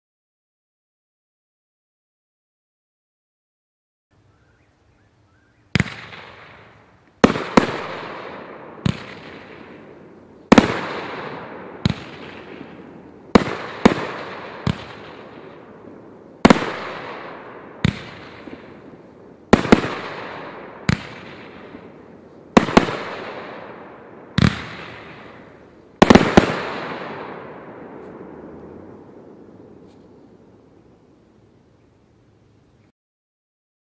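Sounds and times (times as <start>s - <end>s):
firework bangs: 5.7s - 30.8s
firework crackle: 5.7s - 31.8s.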